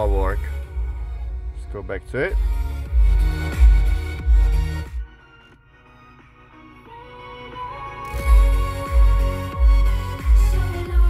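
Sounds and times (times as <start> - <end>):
music with heavy bass beat: 2.3 - 11.0.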